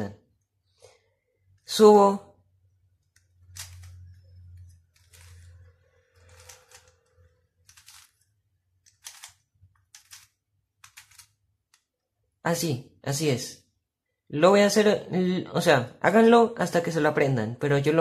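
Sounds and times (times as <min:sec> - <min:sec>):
plastic puzzle cube clicking turns: 0:03.0 - 0:12.0.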